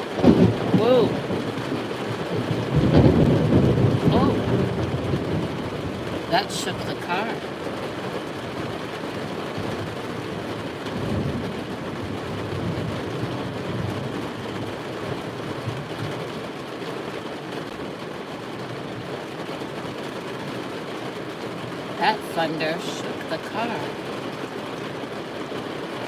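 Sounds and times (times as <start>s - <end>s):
thunder rumble: 0.0s - 6.4s, 7.4s - 16.8s
heavy rain on car roof: 0.0s - 26.0s.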